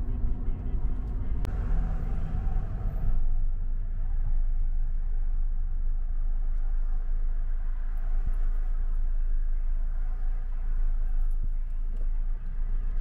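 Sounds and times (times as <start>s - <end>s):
vehicle interior rumble: 0.0s - 13.0s.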